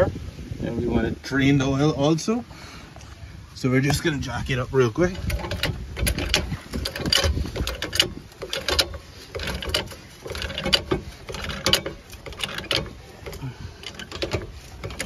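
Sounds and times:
floor jack pumping clicks and creaks: 0:05.0 - 0:15.0.

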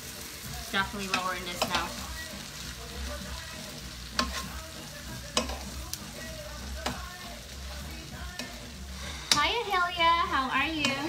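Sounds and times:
low sizzle of frying: 0:00.0 - 0:11.0
metal spoon scraping a pan: 0:04.0 - 0:07.2, 0:08.2 - 0:09.8, 0:10.4 - 0:11.0
spoon knocking against pan: 0:05.3 - 0:05.6.

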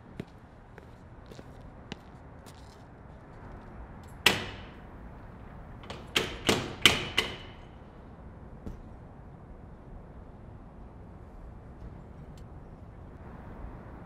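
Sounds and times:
glass door clunking against lock: 0:05.8 - 0:07.6.

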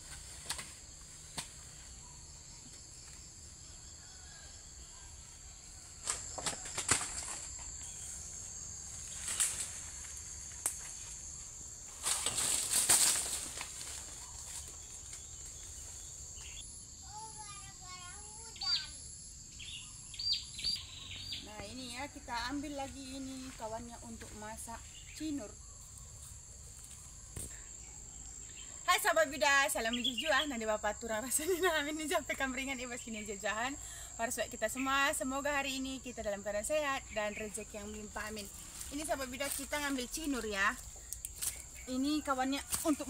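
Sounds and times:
banana leaves rustling: 0:00.0 - 0:02.0, 0:05.8 - 0:16.3, 0:38.0 - 0:43.0
high insect drone: 0:00.0 - 0:43.0.

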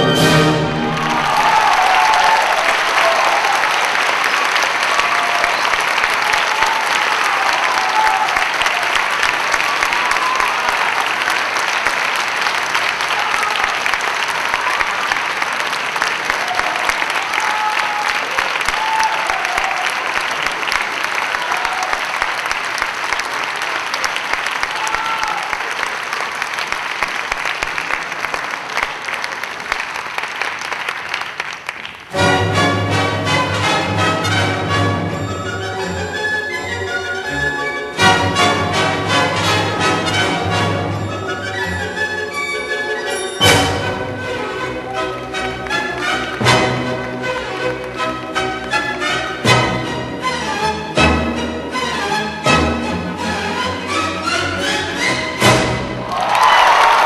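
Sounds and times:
people cheering: 0:00.0 - 0:32.2, 0:42.8 - 0:48.0, 0:55.9 - 0:57.0
audience applauding: 0:00.0 - 0:35.9, 0:38.0 - 0:50.0, 0:53.8 - 0:57.0.

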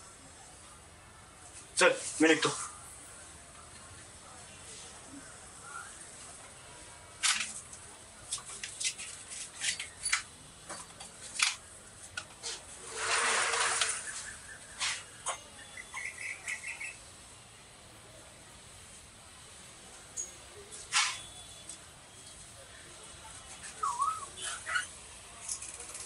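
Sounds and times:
rustling burst: 0:12.5 - 0:15.1.

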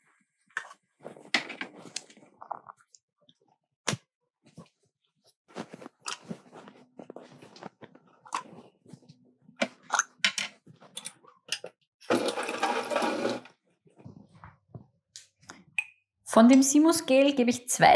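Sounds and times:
pouring sound: 0:12.1 - 0:13.5.

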